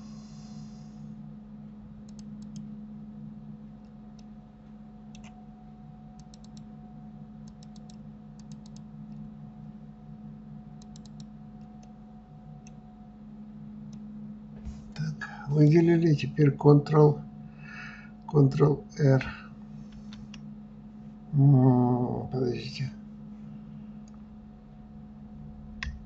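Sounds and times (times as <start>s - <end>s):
low electrical hum: 0.0s - 26.0s
computer mouse and keyboard clicking: 2.0s - 2.7s, 5.1s - 5.4s, 6.2s - 6.7s, 7.4s - 9.3s, 10.8s - 12.0s.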